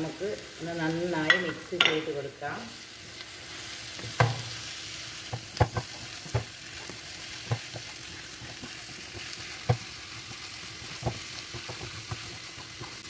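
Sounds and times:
onions sizzling in hot oil: 0.0s - 13.0s
wooden spatula knocking on pan: 4.1s - 4.4s, 5.3s - 6.5s, 7.4s - 7.9s, 9.6s - 9.9s, 10.8s - 13.0s.

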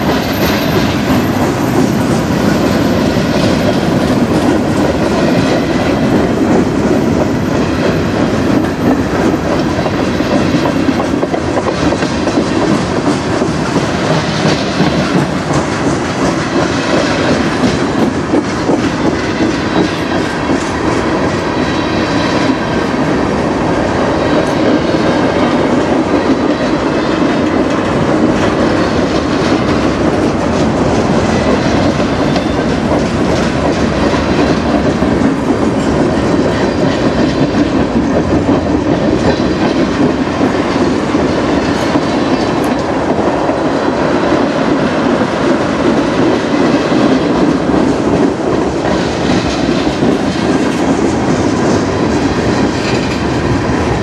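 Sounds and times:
faint clicks of wheels on rail joints: 0.0s - 54.0s
train wheels rumbling on rails: 0.0s - 54.0s.

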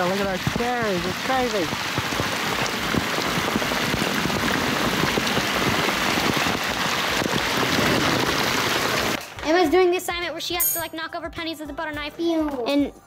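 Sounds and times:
heavy rain splashing on stone: 0.0s - 9.5s.

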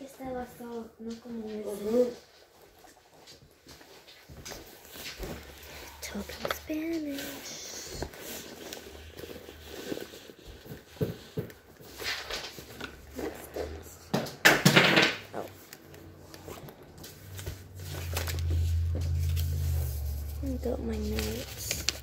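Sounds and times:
rustling: 0.4s - 14.1s, 15.2s - 22.0s
low hum: 17.4s - 21.8s.

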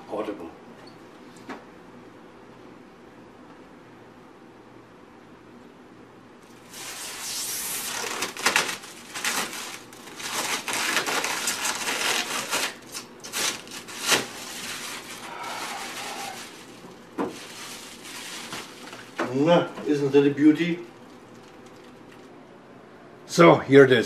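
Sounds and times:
plastic film crinkling: 6.7s - 20.0s, 20.6s - 22.3s.

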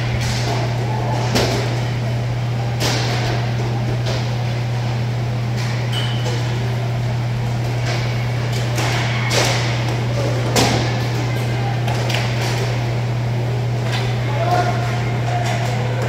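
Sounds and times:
steady low hum: 0.0s - 16.0s
hockey sticks and puck clacking: 7.6s - 12.8s, 13.8s - 16.0s.

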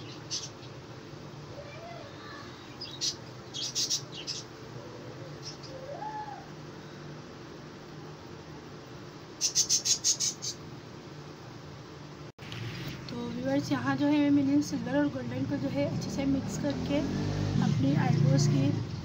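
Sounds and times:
small bird chirping: 0.0s - 0.8s, 1.7s - 6.4s, 9.4s - 10.6s
steady low hum: 0.0s - 19.0s.

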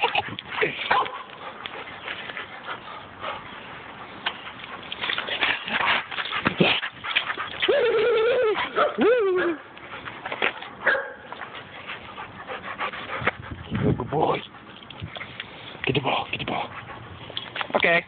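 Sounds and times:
rustling and scuffing: 0.0s - 7.9s, 9.7s - 15.8s
dog whining: 7.5s - 9.6s.

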